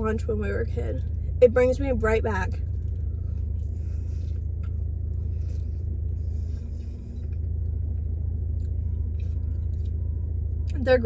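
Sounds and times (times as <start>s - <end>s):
car engine idling: 0.0s - 11.0s
faint chewing: 2.6s - 10.8s.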